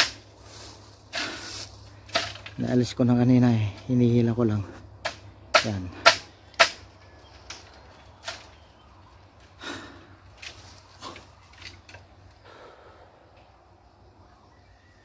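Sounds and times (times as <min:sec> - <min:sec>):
bamboo stalks knocking and creaking: 0:00.0 - 0:04.1, 0:05.0 - 0:12.5
bamboo rustling: 0:00.0 - 0:13.5.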